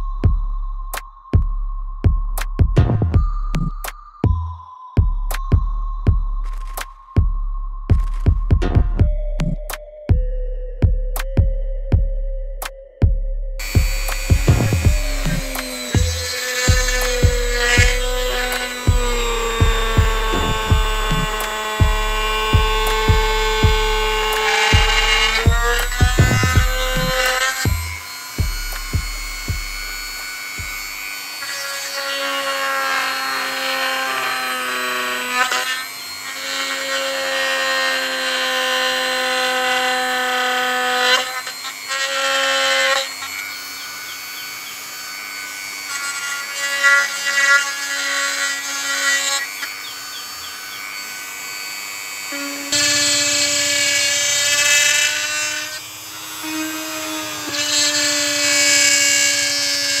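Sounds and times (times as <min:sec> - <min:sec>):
rotary tool whining: 0:13.6 - 1:00.0.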